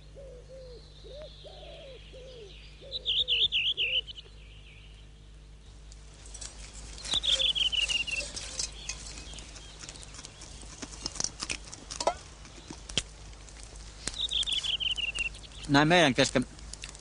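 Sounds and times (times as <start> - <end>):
songbird trilling: 0.2 - 5.2, 6.9 - 11.2, 14.1 - 15.8
small clicks and crackles: 5.9 - 17.0.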